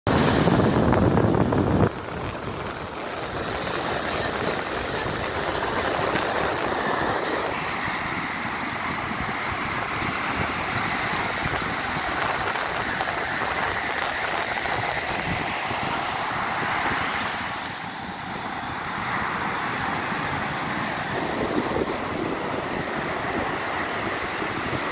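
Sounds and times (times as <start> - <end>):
surf washing on beach: 0.1 - 24.9
wind on microphone: 0.1 - 24.9.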